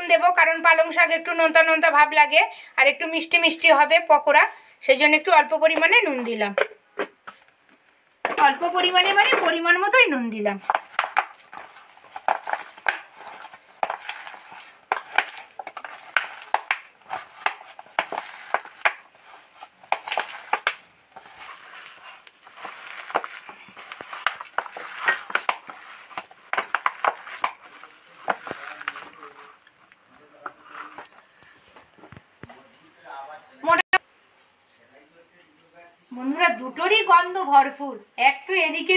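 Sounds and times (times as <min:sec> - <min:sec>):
hand kneading crunchy mixture: 0:10.5 - 0:31.8.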